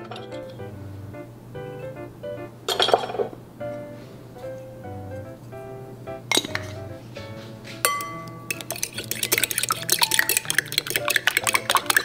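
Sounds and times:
eggs being beaten in bowl: 7.8 - 12.0
utensil clinking against glass bowl: 7.8 - 12.0.

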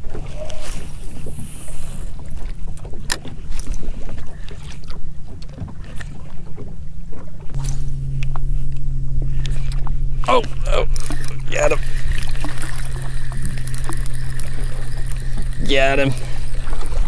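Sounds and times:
low steady hum: 0.0 - 17.0
water slapping boat hull: 0.0 - 17.0.

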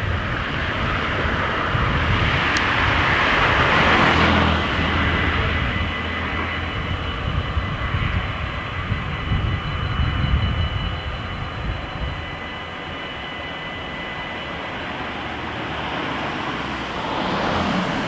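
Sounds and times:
level crossing warning bells: 0.0 - 18.0
car passing by: 2.0 - 6.8, 15.0 - 18.0.

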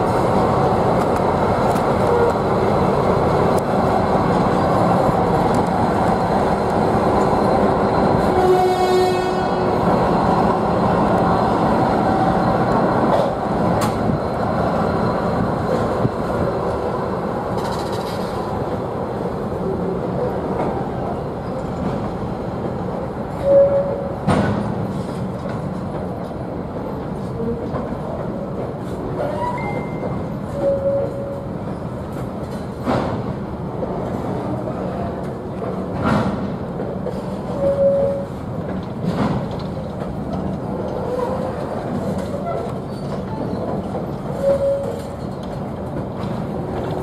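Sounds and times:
freight train wagons rolling: 0.0 - 47.0
train wheel squeals: 23.3 - 24.2, 28.8 - 31.9, 37.1 - 38.4, 41.0 - 45.4.

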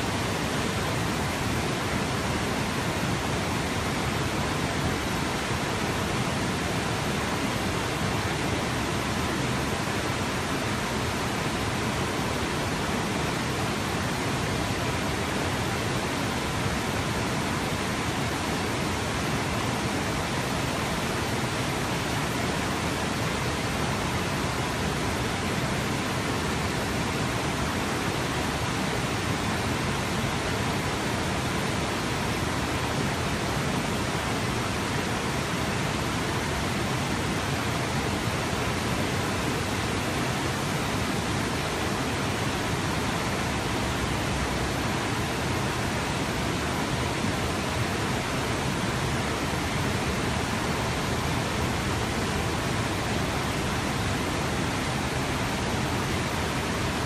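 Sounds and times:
river water rushing over dam: 0.0 - 57.0.

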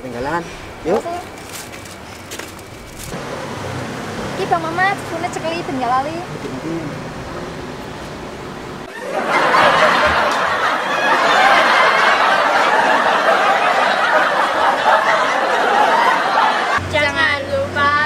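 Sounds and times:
canned audience laughter: 8.8 - 16.8.

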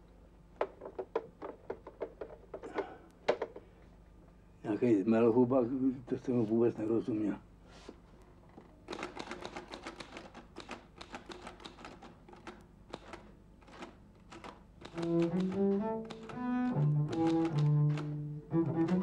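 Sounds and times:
quick irregular clicks: 8.9 - 18.2
bowed string instrument melody: 14.9 - 19.0.

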